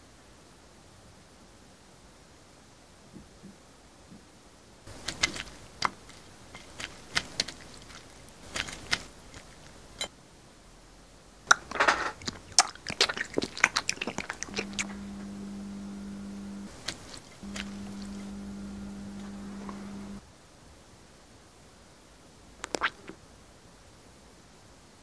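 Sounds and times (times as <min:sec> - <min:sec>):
chewing and crunching mouth sounds: 0:04.9 - 0:10.1, 0:11.5 - 0:15.6, 0:16.5 - 0:20.2
low hum: 0:14.4 - 0:20.2.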